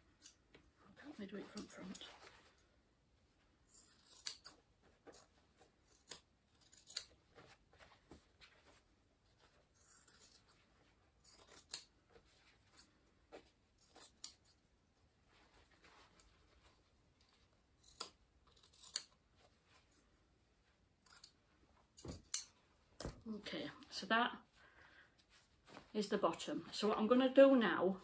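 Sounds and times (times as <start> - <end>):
scissors cutting denim: 3.7 - 7.2, 9.6 - 10.6, 11.2 - 11.9, 17.8 - 19.2.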